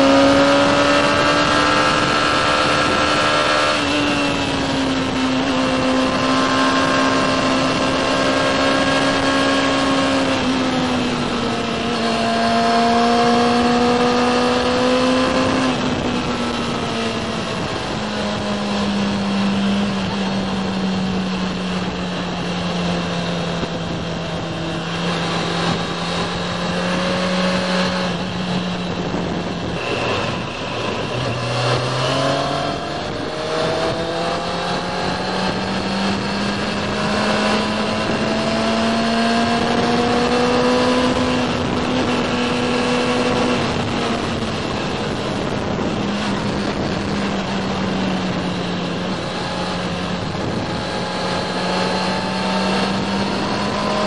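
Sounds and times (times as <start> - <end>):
motorcycle engine: 0.0 - 54.0
wind noise: 0.0 - 54.0.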